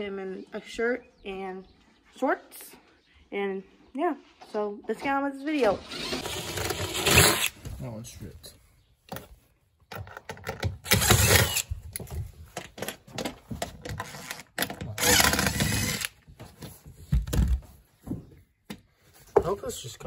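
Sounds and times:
impact driver bursts: 5.9s - 7.6s, 10.8s - 11.7s, 15.0s - 16.2s.

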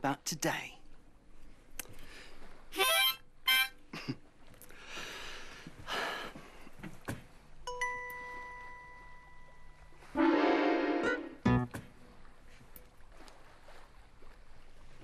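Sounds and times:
harmonica playing: 2.8s - 3.8s, 10.2s - 11.6s.

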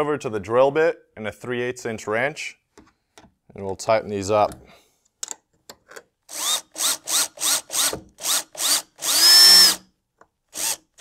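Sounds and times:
power drill tightening bolt: 6.3s - 9.8s.

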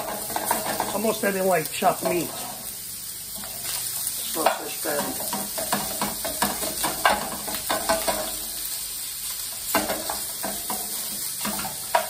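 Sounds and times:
wooden spoon scraping a pan: 0.0s - 1.2s, 2.0s - 2.7s
meat sizzling in oil: 0.0s - 12.0s.

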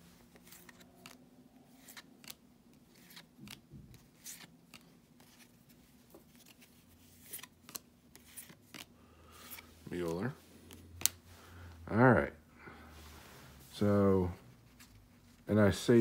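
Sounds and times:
cards sliding in a stack: 0.2s - 11.2s.

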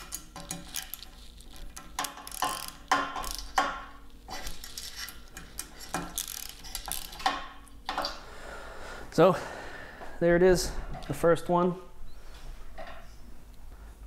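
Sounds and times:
socket ratchet clicking: 1.8s - 3.7s, 5.4s - 7.4s.

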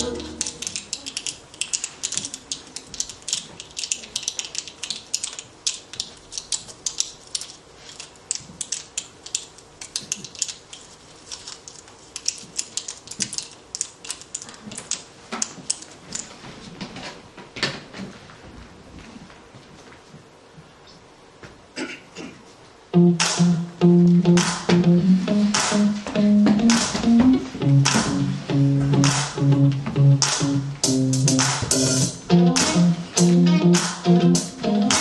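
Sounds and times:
small clicks and ratcheting ticks: 1.0s - 10.6s.

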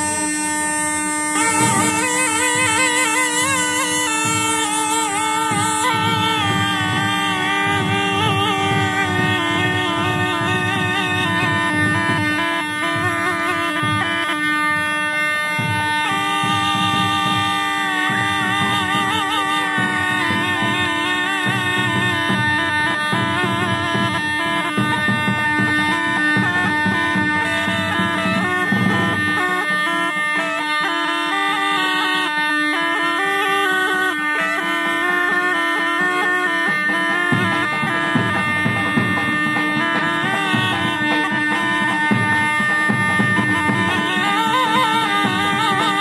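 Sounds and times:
gourd pipe melody over drone: 0.0s - 14.4s.

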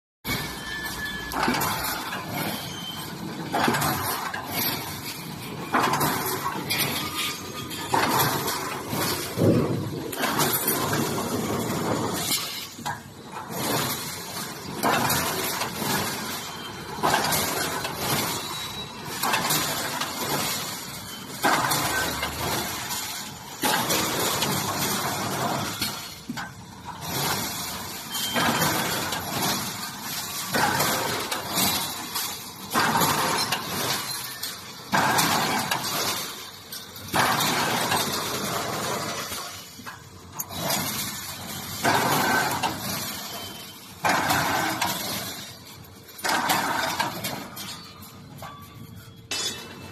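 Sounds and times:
sharp metallic clatter: 0.2s - 49.9s.

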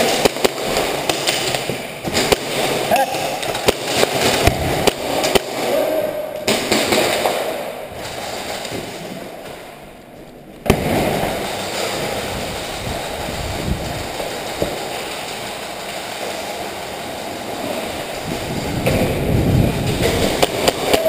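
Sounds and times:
airsoft guns firing: 0.0s - 7.8s, 20.0s - 21.0s
noisy background: 0.0s - 21.0s.

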